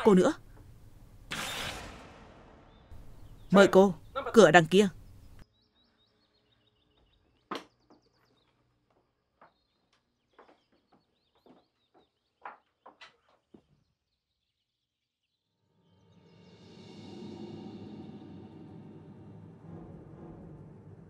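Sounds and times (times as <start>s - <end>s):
high-heeled footsteps on wooden floor: 10.3s - 13.0s.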